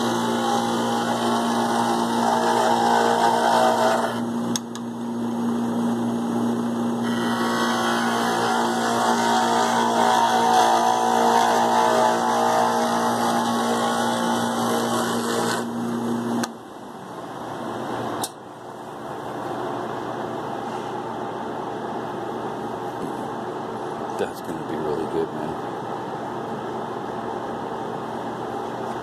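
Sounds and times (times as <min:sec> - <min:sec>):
tool scraping turning wood: 0:00.0 - 0:04.2, 0:07.0 - 0:15.7
lathe motor humming: 0:00.0 - 0:04.3, 0:06.0 - 0:16.4.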